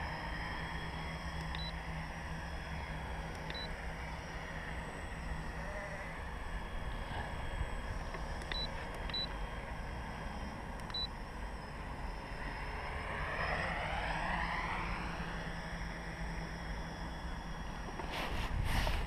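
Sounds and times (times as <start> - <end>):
faint propeller whine: 0.0 - 19.0
low wind rumble: 0.0 - 19.0.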